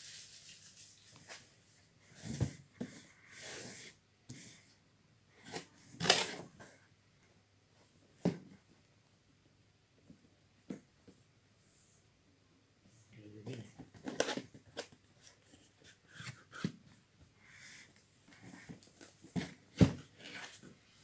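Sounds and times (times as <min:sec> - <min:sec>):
soft rustle: 0:00.0 - 0:04.0.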